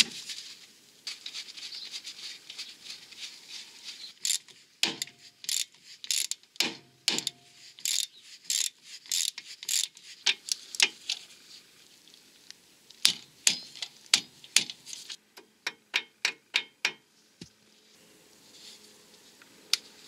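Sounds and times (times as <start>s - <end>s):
faint handling noise: 0.0s - 6.4s
ratchet wrench clicking: 4.2s - 10.9s.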